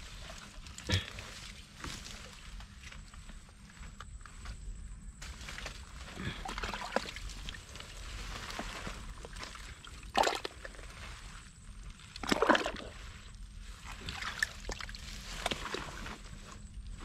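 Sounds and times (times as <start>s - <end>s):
muddy water splashing: 5.5s - 16.5s.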